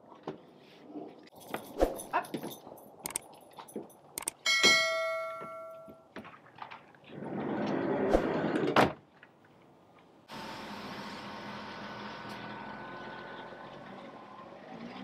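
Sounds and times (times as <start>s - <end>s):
click with ringing chime: 4.2s - 6.0s
sliding door rolling and slamming: 7.1s - 9.0s.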